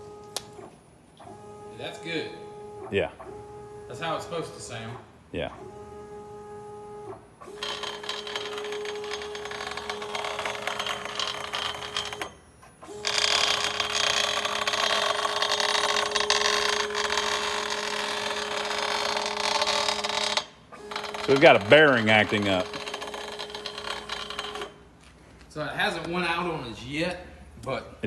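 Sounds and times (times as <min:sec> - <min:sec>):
rattling grinding machine noise: 0:07.4 - 0:24.9
router spindle whine: 0:07.5 - 0:24.8.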